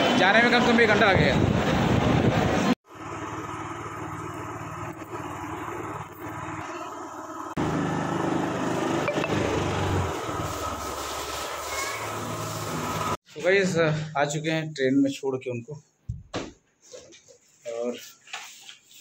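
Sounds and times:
motorcycle engine running: 2.9s - 10.6s.

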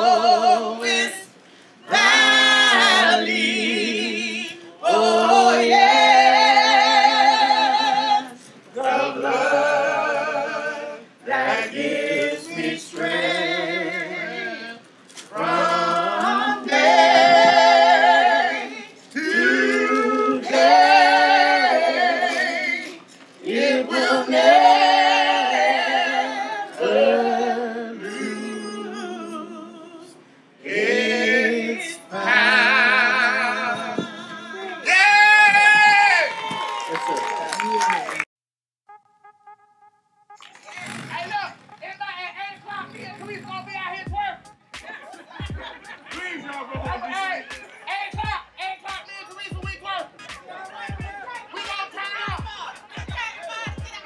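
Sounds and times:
person singing with vibrato: 0.0s - 35.1s.

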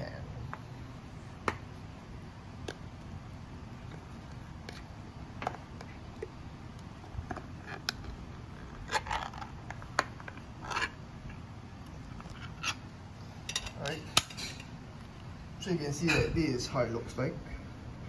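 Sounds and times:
can lid tearing: 7.3s - 11.0s.

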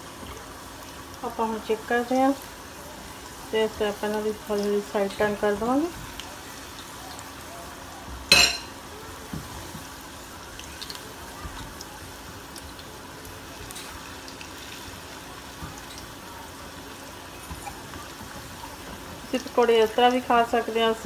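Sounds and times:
food frying in hot oil: 0.0s - 21.0s
fork striking metal pan: 8.3s - 8.7s.

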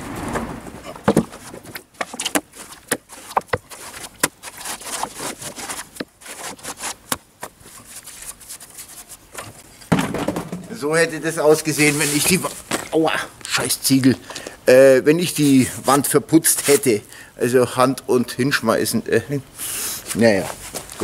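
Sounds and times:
mortar scraping: 0.1s - 9.9s, 11.4s - 12.9s
mortar slapping against brick wall: 1.0s - 7.6s.

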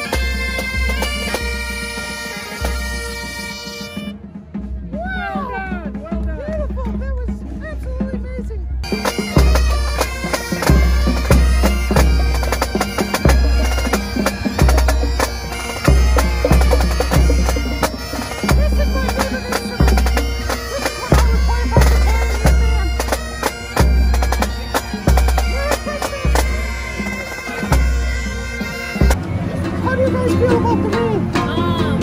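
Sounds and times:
bagpipe music: 0.0s - 4.3s, 8.8s - 32.0s
bass drum beat: 9.0s - 29.2s.

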